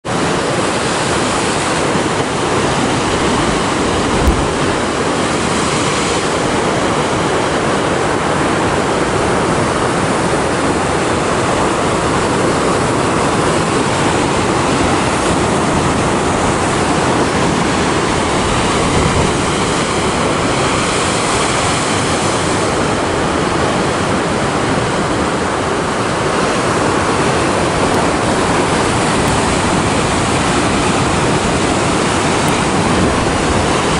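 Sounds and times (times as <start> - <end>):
surf breaking against rocks: 0.1 - 33.9
brief thump: 4.2 - 4.7.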